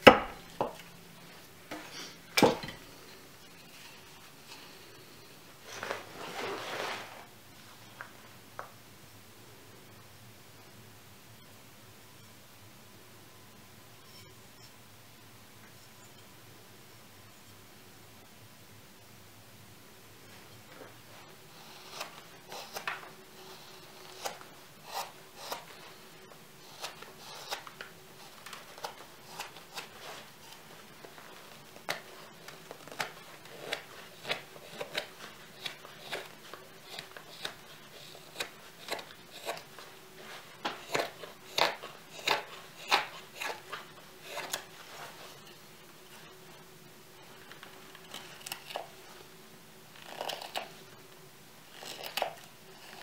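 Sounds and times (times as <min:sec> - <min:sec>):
knife slicing wood shavings: 0:21.5 - 0:25.9, 0:26.6 - 0:30.6, 0:31.8 - 0:45.6.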